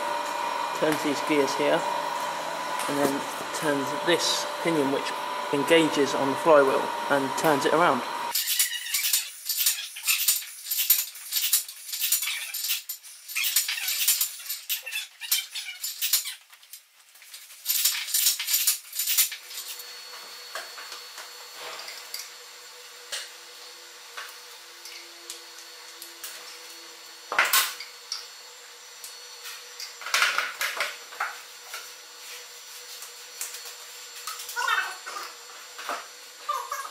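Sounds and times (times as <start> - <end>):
gears clinking and rattling: 8.3 - 19.8.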